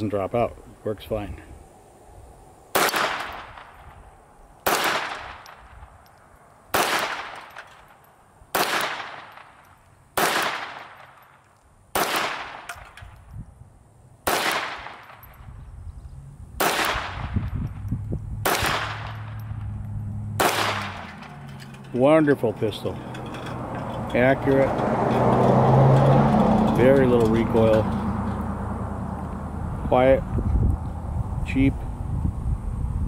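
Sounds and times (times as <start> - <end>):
pistol shots: 2.7 - 3.8, 4.6 - 5.7, 6.7 - 7.9, 8.5 - 13.0, 14.2 - 15.3, 16.6 - 17.4, 18.4 - 19.3, 20.4 - 21.3.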